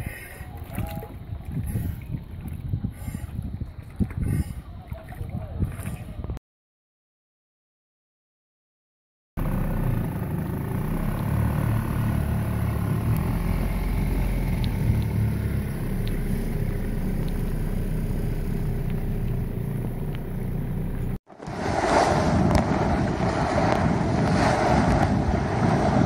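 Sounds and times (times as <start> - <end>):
waves: 0.0 - 6.3
wind: 0.0 - 6.4, 9.4 - 26.0
outboard motor droning: 9.4 - 21.2
light ticks: 14.6 - 15.2, 16.0 - 16.3, 17.2 - 17.5, 18.8 - 19.4.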